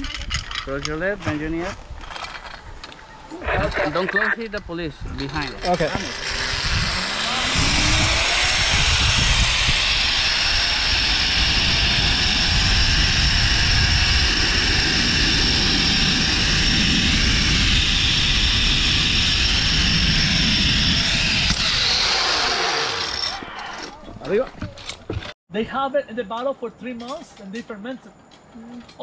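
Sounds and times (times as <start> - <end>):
wind rumble on microphone: 0.0 - 22.0
zip line pulley whine: 5.5 - 23.9.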